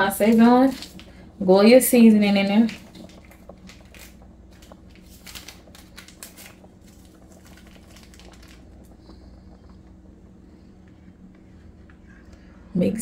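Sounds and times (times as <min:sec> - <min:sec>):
faint steady hum: 0:00.0 - 0:13.0
seasoning packet crinkling: 0:00.2 - 0:01.2, 0:02.4 - 0:09.0.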